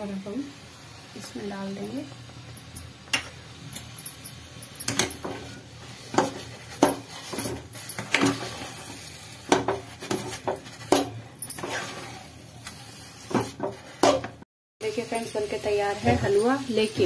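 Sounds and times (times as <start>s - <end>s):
metal spoon scraping a pot: 4.8s - 14.3s.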